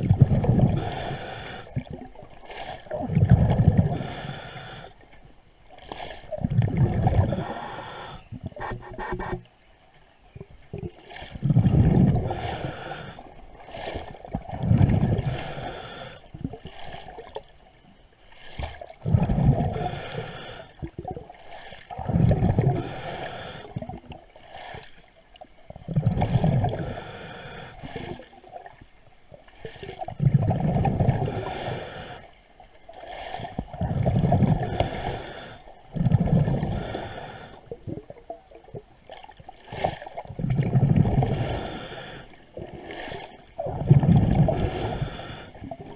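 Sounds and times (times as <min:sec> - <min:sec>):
exhaled bubbles gurgling: 0:00.0 - 0:04.4, 0:05.8 - 0:09.5, 0:10.3 - 0:17.5, 0:18.6 - 0:24.8, 0:25.6 - 0:28.8, 0:29.4 - 0:32.2, 0:32.9 - 0:45.9
diver breathing underwater: 0:00.3 - 0:01.9, 0:02.6 - 0:05.0, 0:06.7 - 0:09.4, 0:11.3 - 0:16.3, 0:18.4 - 0:25.0, 0:25.9 - 0:28.4, 0:29.7 - 0:32.4, 0:33.0 - 0:37.8, 0:39.7 - 0:45.9.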